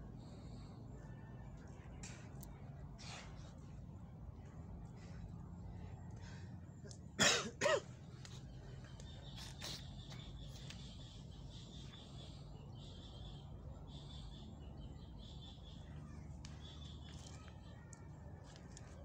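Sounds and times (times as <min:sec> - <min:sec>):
low steady rumble: 0:00.0 - 0:19.0
small birds chirping: 0:07.9 - 0:19.0.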